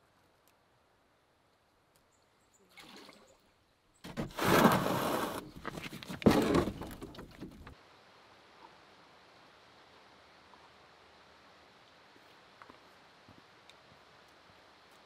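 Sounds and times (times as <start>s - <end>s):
canoe hull scraping over rocks: 4.0s - 7.8s.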